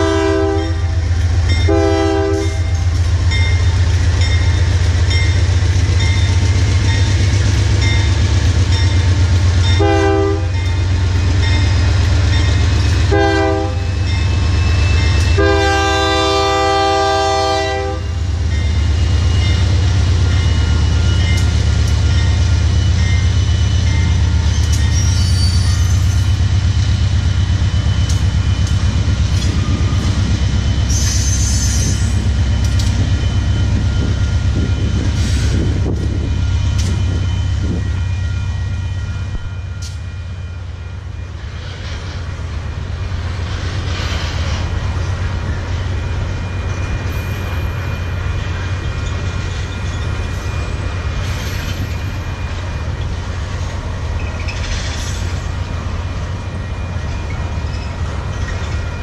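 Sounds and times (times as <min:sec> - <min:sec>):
train horn blasts: 0:00.0 - 0:02.9, 0:09.7 - 0:10.7, 0:13.0 - 0:14.0, 0:14.9 - 0:18.2
diesel locomotives droning: 0:00.0 - 0:59.0
high squeals of rolling cars: 0:14.1 - 0:15.4, 0:19.0 - 0:27.1, 0:27.7 - 0:40.2, 0:43.5 - 0:59.0.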